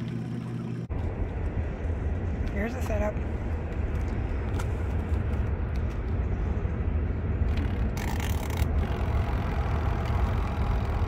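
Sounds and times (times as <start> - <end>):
washing machine spin cycle hum: 0.0 - 4.4.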